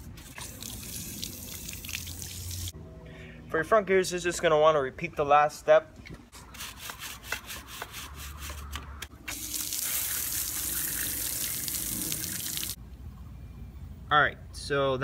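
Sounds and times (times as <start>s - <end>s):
hose spraying water: 0.2s - 2.7s, 9.2s - 12.8s.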